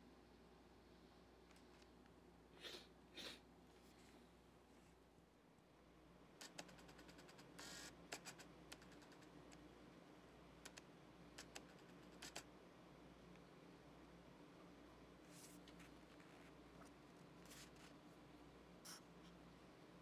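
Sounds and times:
steady low hum: 0.0 - 20.0
faint clicks: 10.6 - 12.5.

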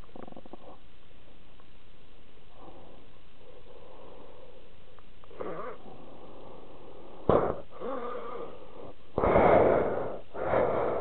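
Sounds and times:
man breathing heavily: 5.8 - 11.0.

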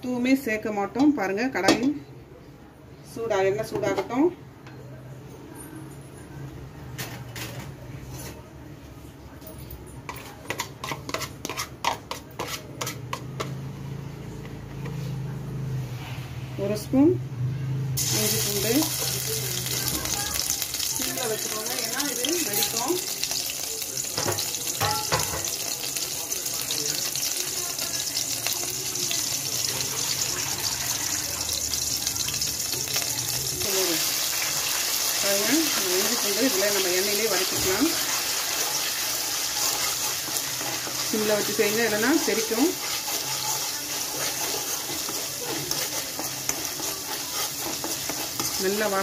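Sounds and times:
paste sizzling in hot oil: 18.0 - 49.0.

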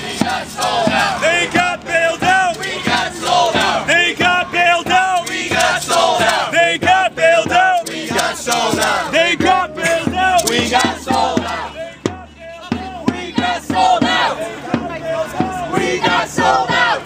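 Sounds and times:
crowd shouting rhythmic chant: 0.0 - 17.0.

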